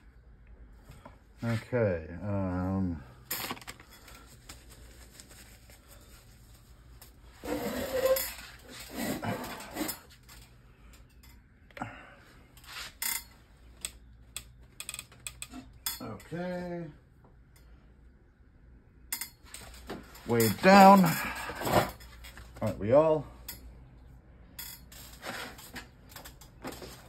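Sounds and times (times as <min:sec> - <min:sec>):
rustling and scraping: 0:03.3 - 0:11.0, 0:12.6 - 0:16.4, 0:19.4 - 0:22.8, 0:24.6 - 0:27.0.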